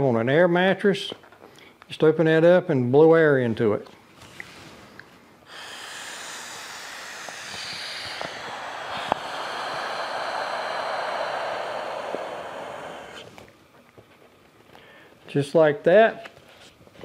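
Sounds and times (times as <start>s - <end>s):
man blowing into inflatable valve: 5.4s - 13.6s.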